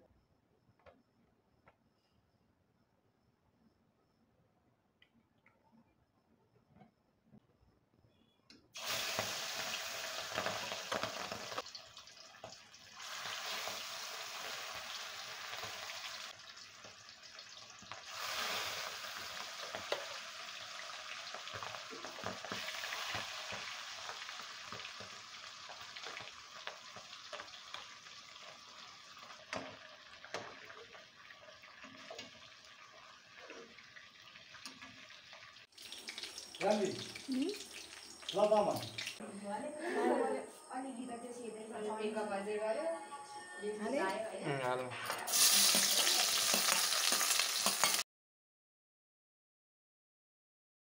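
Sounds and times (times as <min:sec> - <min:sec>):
fish sizzling in hot oil: 0:08.8 - 0:39.2, 0:45.2 - 0:48.0
metal spatula stirring in pan: 0:21.5 - 0:35.4, 0:45.1 - 0:48.0.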